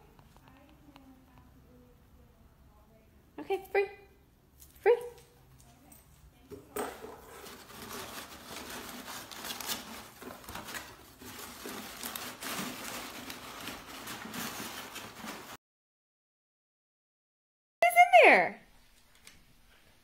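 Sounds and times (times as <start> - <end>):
paper rustling and crinkling: 6.8 - 15.6.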